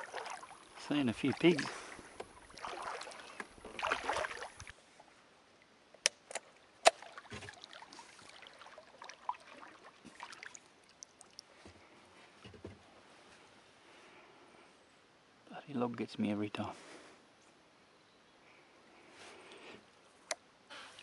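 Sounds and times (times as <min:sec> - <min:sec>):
kayak paddle strokes: 0:00.0 - 0:04.8, 0:06.8 - 0:12.6.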